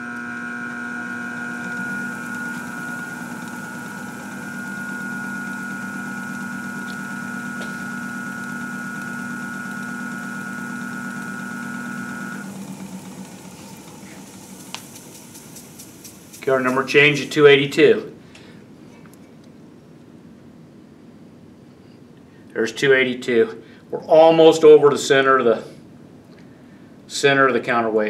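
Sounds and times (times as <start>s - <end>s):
balancing machine hum and whine: 0.0s - 17.6s.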